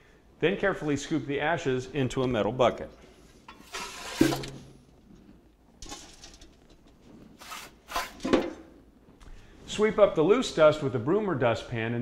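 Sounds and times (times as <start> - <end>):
shovel scraping fireplace floor: 3.5 - 4.8, 7.2 - 8.6.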